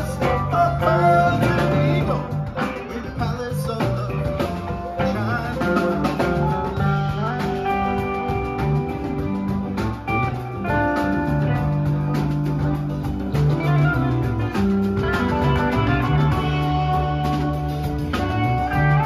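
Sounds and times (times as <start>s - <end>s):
bass guitar: 0.0s - 19.0s
drum kit: 0.0s - 19.0s
lead guitar: 0.0s - 19.0s.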